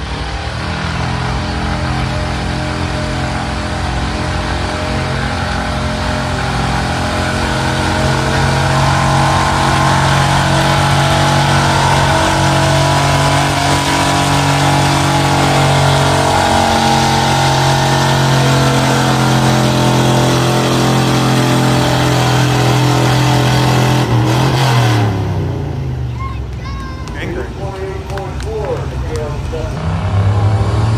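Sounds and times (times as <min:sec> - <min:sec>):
pickup truck engine revving: 0:00.0 - 0:26.2, 0:27.2 - 0:30.9.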